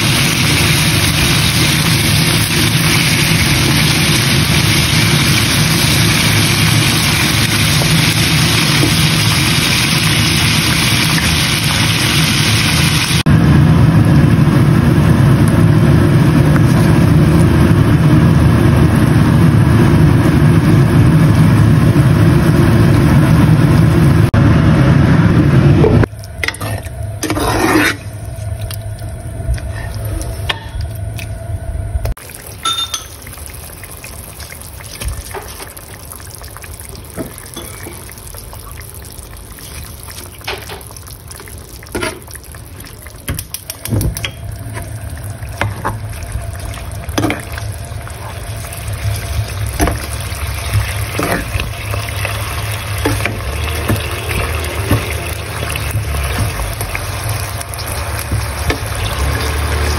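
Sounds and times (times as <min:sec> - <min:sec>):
steady low hum: 0:13.2 - 0:33.1, 0:43.8 - 0:58.8
liquid simmering in a pot: 0:32.1 - 0:59.9
metal spoon clinking against pot: 0:32.6 - 0:33.2.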